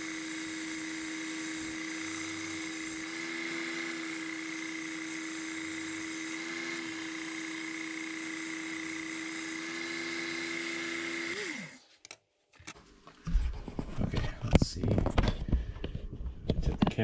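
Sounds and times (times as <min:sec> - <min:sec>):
belt sharpener motor whine: 0:00.0 - 0:11.8.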